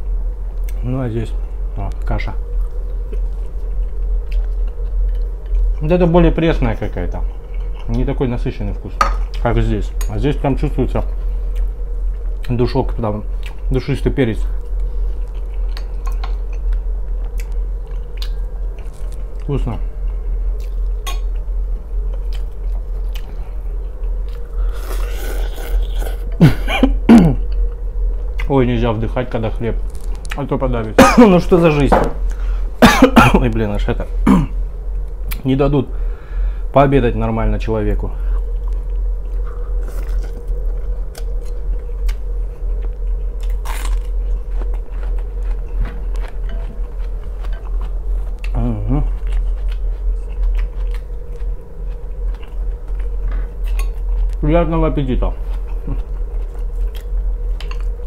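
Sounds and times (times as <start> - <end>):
low hum: 0.0 - 58.0
man chewing: 2.5 - 5.8, 7.2 - 8.0, 11.2 - 12.5, 14.6 - 28.5, 38.2 - 54.4, 55.3 - 58.0
man slurping and chewing noodles: 24.3 - 26.3.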